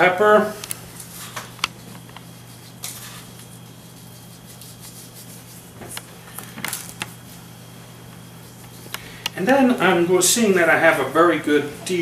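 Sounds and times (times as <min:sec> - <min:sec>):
low steady hum: 0:00.0 - 0:12.0
seasoning sprinkled in metal bowl: 0:01.0 - 0:05.7.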